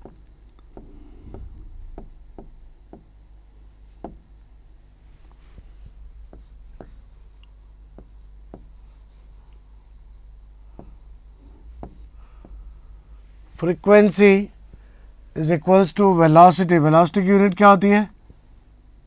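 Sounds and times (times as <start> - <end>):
writing taps on a board: 0.0 - 3.1, 4.0 - 4.3, 6.3 - 7.1, 7.9 - 8.8, 10.8 - 11.0, 11.8 - 12.6
low electrical hum: 0.0 - 19.0.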